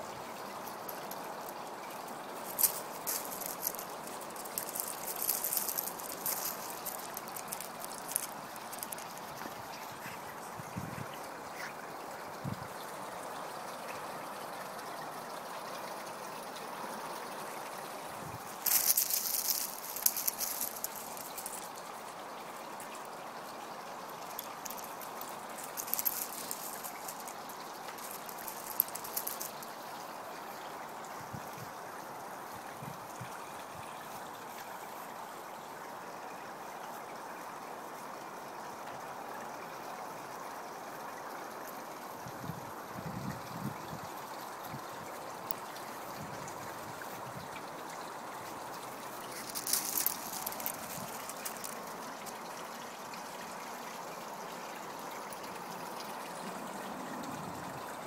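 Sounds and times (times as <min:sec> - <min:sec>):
steady hiss: 0:00.0 - 0:58.0
dogs scuffling on stones: 0:00.6 - 0:10.4, 0:18.3 - 0:21.9, 0:24.2 - 0:29.9, 0:48.9 - 0:52.4.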